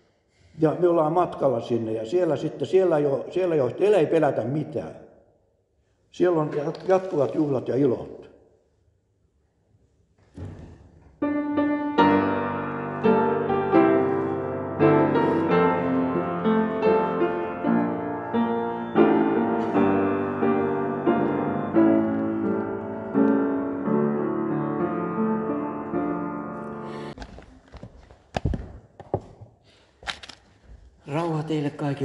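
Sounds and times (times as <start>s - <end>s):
piano playing slow chords: 11.2s - 27.2s.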